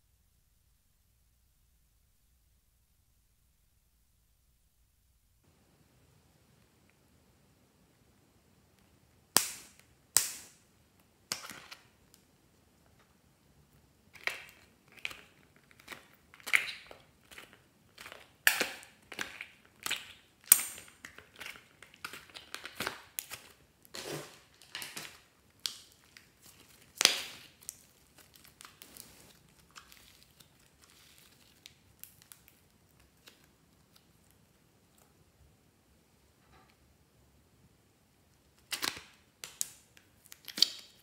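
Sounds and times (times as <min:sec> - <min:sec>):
slime squeezed wet crackles: 0:14.1 - 0:35.0, 0:38.7 - 0:41.0.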